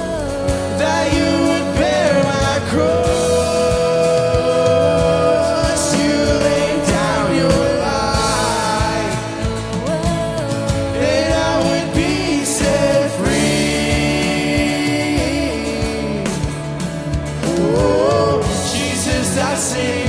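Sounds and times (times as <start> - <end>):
person singing: 0.0 - 20.0
worship band playing slow song: 0.0 - 20.0.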